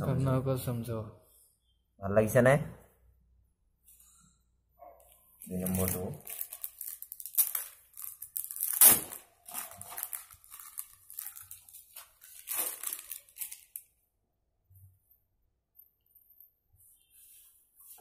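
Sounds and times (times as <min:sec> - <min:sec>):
t-shirt rustling and crinkling: 0:05.0 - 0:13.9.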